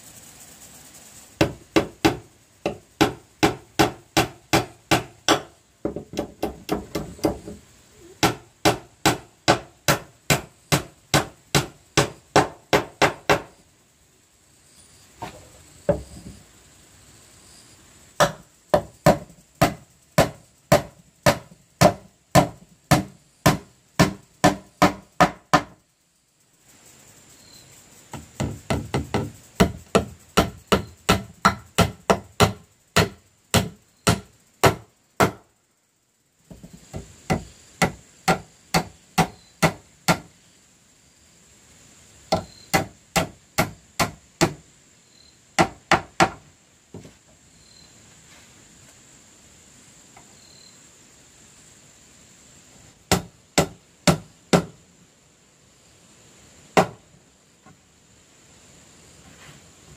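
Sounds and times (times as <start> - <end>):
hammer driving nails into wood: 1.4 - 7.6, 28.4 - 35.4.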